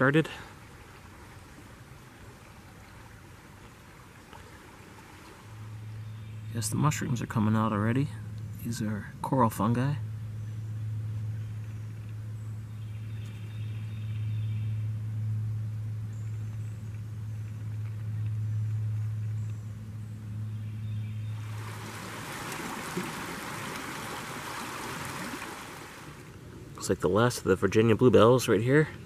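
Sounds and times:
shallow stream rushing: 0:00.0 - 0:06.0, 0:21.3 - 0:26.6
steady low hum: 0:00.0 - 0:29.0.

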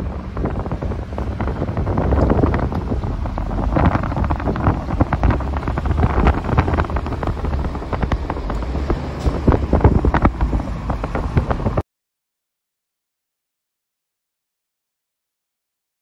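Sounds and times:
freight train rumbling past: 0:00.0 - 0:11.8
wind buffeting microphone: 0:00.0 - 0:11.8.

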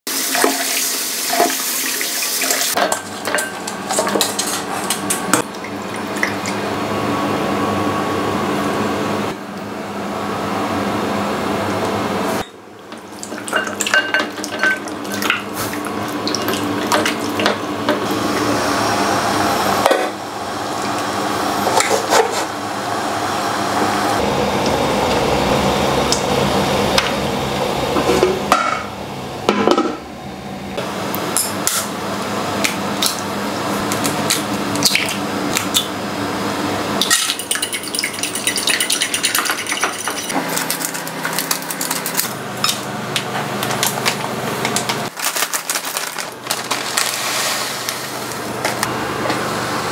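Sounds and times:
dishes and pots clinking: 0:02.4 - 0:05.5, 0:12.4 - 0:15.5, 0:37.0 - 0:40.8.

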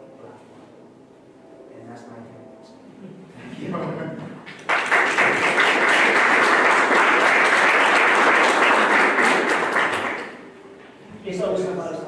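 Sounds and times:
audience applauding: 0:04.4 - 0:10.4.

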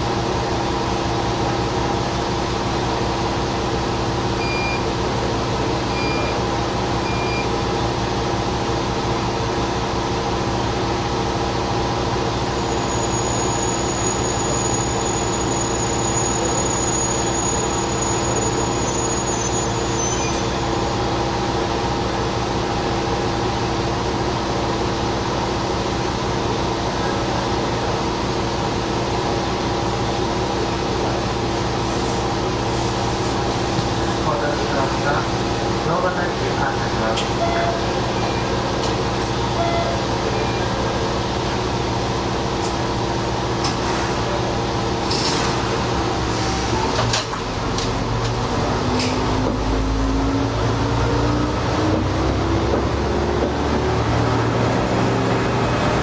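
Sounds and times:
diesel railcar engine idling: 0:00.0 - 0:56.0
short beeps: 0:04.4 - 0:04.9, 0:05.9 - 0:06.4, 0:07.0 - 0:07.5, 0:37.4 - 0:38.5, 0:39.5 - 0:40.8
thin high squeal: 0:12.7 - 0:20.6.

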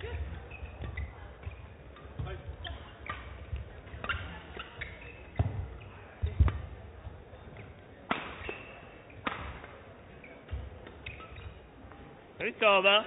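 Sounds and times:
shoe squeaks: 0:00.0 - 0:06.6, 0:07.5 - 0:09.2, 0:10.1 - 0:11.8
racket striking shuttlecock: 0:07.6 - 0:09.8.

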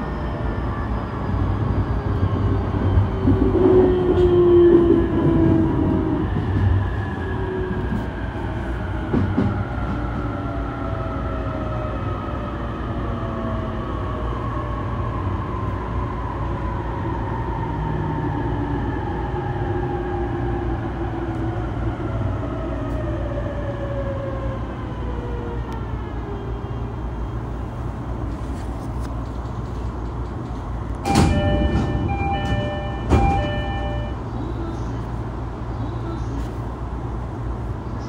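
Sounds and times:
train doors opening: 0:00.0 - 0:10.4, 0:28.2 - 0:35.1
train rumble: 0:00.0 - 0:38.0
door chime: 0:31.1 - 0:34.2.

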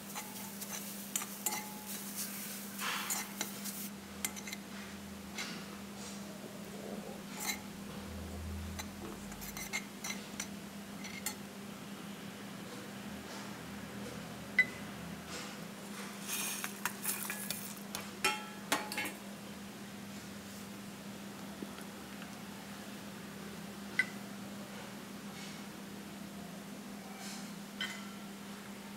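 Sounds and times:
steel utensils clinking and scraping: 0:00.0 - 0:04.6, 0:16.3 - 0:19.2.

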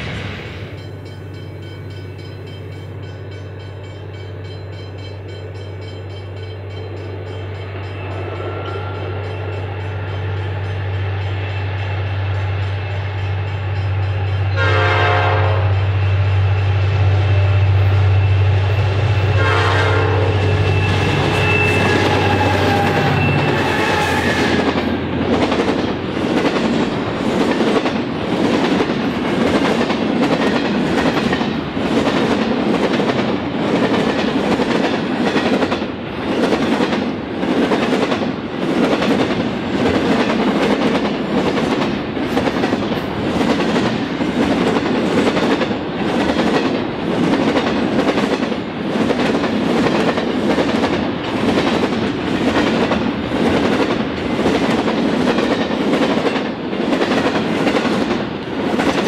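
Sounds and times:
diesel locomotive engine drone: 0:00.0 - 0:59.0
wheels clickety-clack over rail joints: 0:18.6 - 0:59.0.

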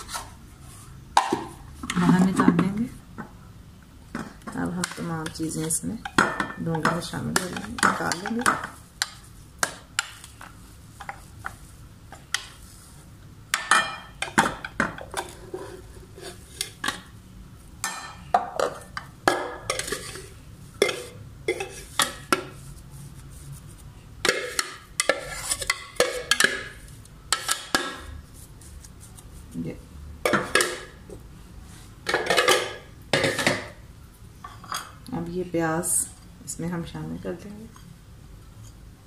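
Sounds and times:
plastic spatula scraping bowl: 0:19.7 - 0:26.8.

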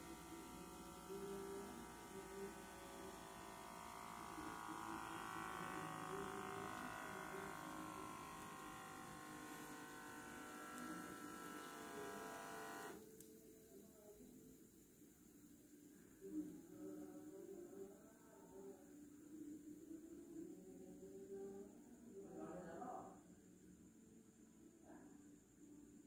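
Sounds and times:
small air pump motor: 0:00.0 - 0:13.1.

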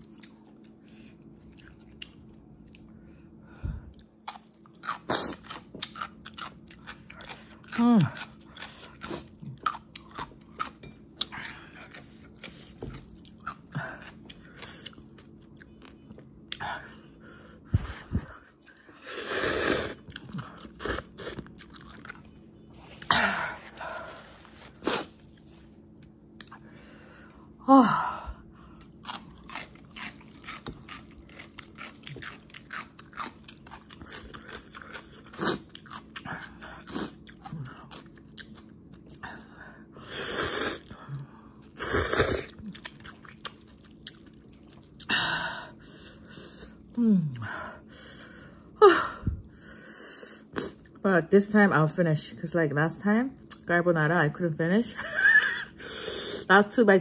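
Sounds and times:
wet chewing: 0:03.9 - 0:16.6, 0:28.7 - 0:39.3, 0:42.5 - 0:45.1
person slurping noodles: 0:19.0 - 0:20.1, 0:40.1 - 0:40.9, 0:41.8 - 0:42.6.

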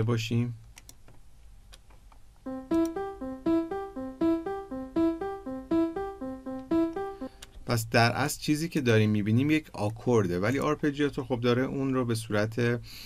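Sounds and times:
arpeggiated piano notes: 0:02.5 - 0:07.7.

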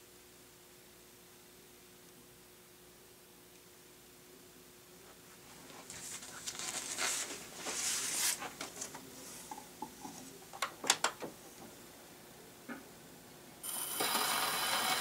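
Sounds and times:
paper rustling: 0:05.6 - 0:09.6
sharp clicks and knocks: 0:08.6 - 0:11.8.

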